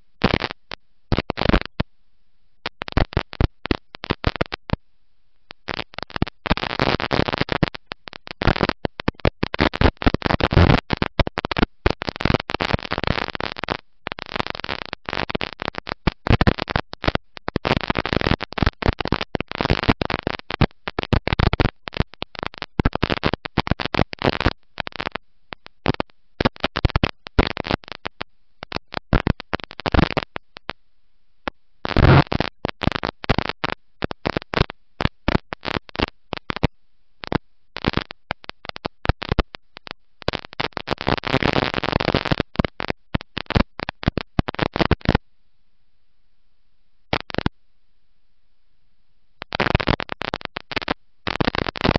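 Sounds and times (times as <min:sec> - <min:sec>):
crackling microphone distortion: 0:00.0 - 0:45.2, 0:47.0 - 0:47.6, 0:48.4 - 0:51.9.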